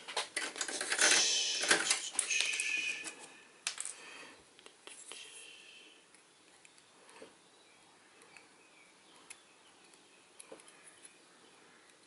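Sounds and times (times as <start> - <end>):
tape clicks: 0.1 - 4.0.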